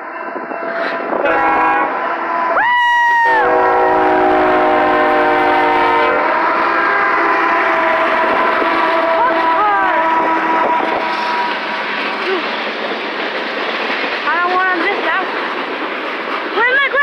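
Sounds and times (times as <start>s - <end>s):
locomotive air horn chord: 0.8s - 2.6s, 3.2s - 11.6s
locomotives running: 6.3s - 17.0s.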